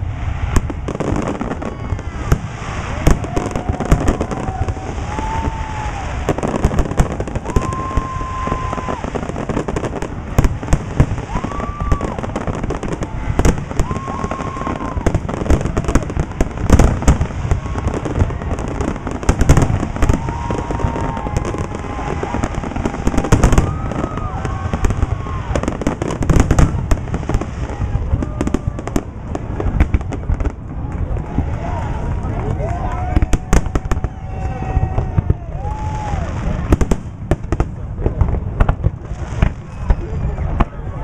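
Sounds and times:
fireworks booming and crackling: 0:00.0 - 0:41.0
people's voices: 0:11.2 - 0:41.0.

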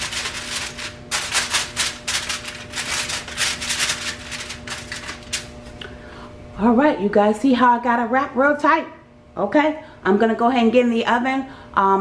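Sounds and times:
aluminum foil crinkling: 0:00.0 - 0:05.6.

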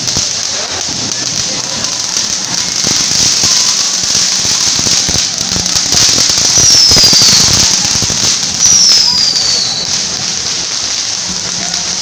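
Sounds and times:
crackling pops: 0:00.0 - 0:12.0
fireworks hissing: 0:00.0 - 0:12.0
high falling whistles: 0:08.6 - 0:10.0.

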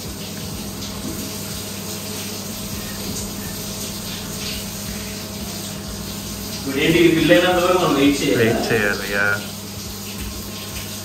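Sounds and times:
water running into bathtub: 0:00.0 - 0:11.0
low hum: 0:02.4 - 0:06.8.

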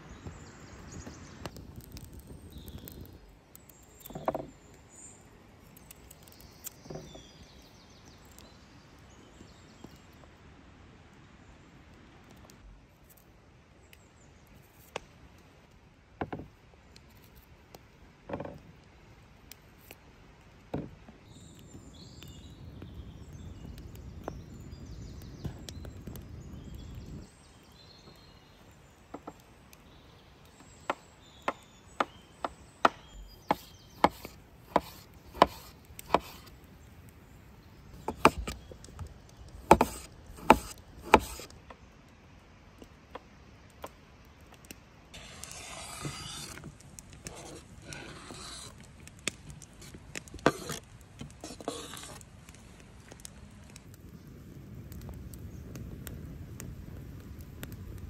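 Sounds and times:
scraping food off board: 0:39.7 - 0:41.5, 0:45.2 - 0:48.8, 0:49.8 - 0:50.8, 0:51.4 - 0:52.2.

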